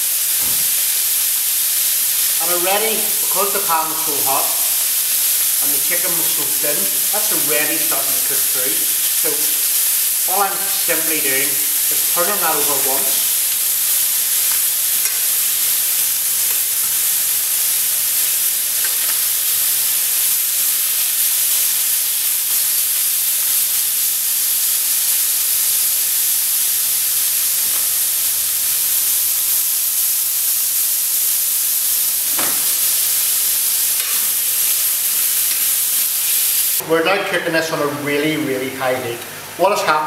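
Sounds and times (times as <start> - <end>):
chicken sizzling in frying pan: 0.0 - 40.0
knock: 32.4 - 32.7.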